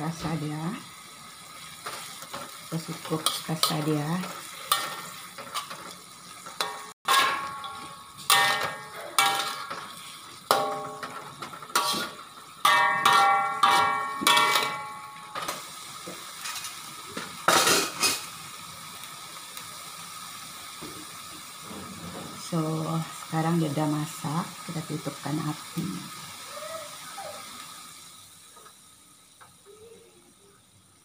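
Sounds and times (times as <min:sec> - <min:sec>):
food sizzling: 0:00.0 - 0:31.0
metal spatula clanking on wok: 0:01.8 - 0:05.9, 0:06.5 - 0:15.6.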